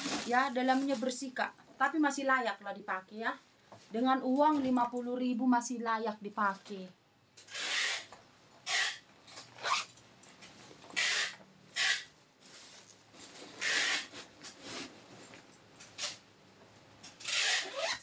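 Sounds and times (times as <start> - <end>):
handbags rustling: 0.0 - 1.3.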